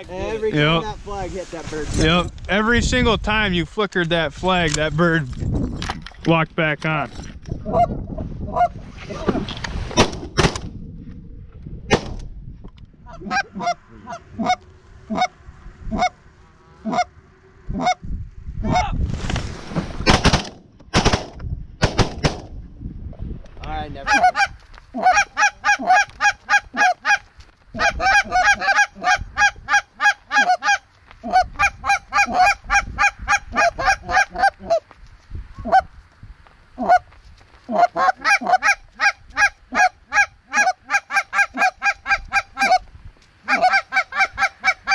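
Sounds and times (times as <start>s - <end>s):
loud sharp bangs: 11.9s - 12.3s, 19.9s - 22.6s
geese honking: 13.1s - 18.0s, 24.1s - 34.8s, 36.8s - 42.8s, 43.4s - 44.9s.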